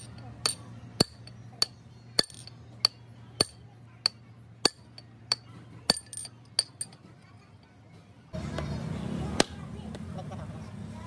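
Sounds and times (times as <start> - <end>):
steel rod tapping steel sleeve: 0.0 - 7.1.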